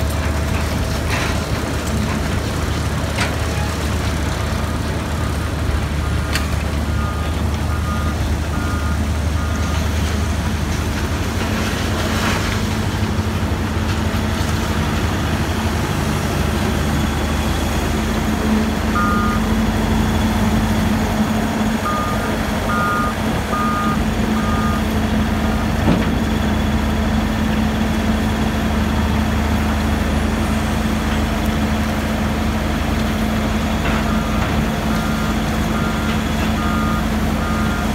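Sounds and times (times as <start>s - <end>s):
reversing alarm beeping: 5.2s - 9.9s, 18.8s - 20.5s, 21.8s - 25.8s, 33.9s - 37.9s.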